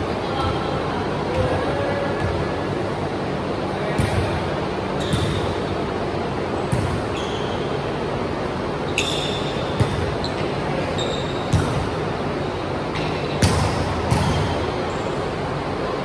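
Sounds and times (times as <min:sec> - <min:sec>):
sneakers squeaking on hardwood: 0:05.0 - 0:05.6, 0:06.6 - 0:07.8, 0:08.9 - 0:11.8
volleyball being hit: 0:13.0 - 0:14.6.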